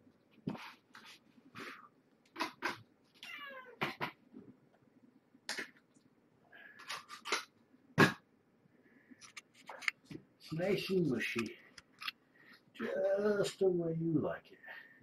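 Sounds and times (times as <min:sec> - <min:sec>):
kitten meowing: 0:03.2 - 0:03.8.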